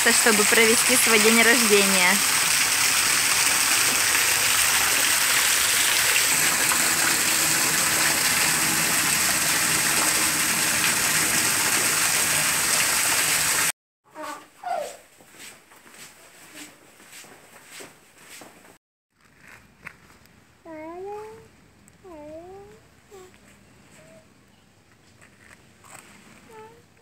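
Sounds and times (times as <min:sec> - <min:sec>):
waterfall splashing onto rocks: 0:00.5 - 0:13.7.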